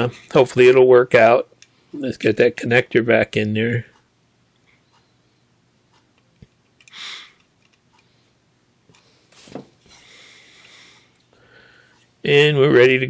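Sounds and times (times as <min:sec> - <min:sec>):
sharp clicks of small parts: 0:06.2 - 0:08.1.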